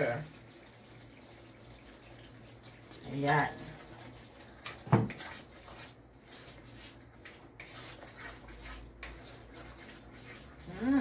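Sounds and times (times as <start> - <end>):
spatula scraping wok: 3.5 - 11.0.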